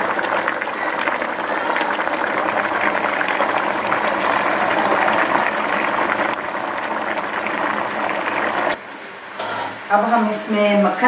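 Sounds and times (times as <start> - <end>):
stew bubbling in pan: 0.0 - 8.8.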